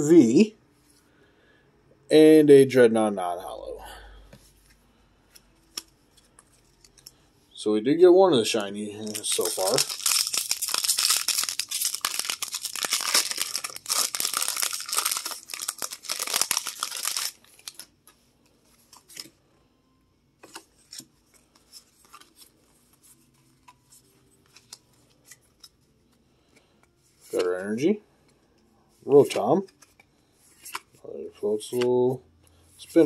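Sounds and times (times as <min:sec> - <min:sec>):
foil wrapper crinkling and tearing: 0:09.0 - 0:17.9.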